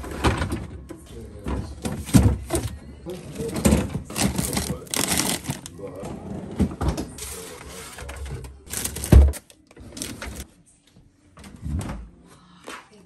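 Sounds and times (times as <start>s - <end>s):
plastic packages rustling: 2.0s - 6.0s, 7.2s - 10.4s.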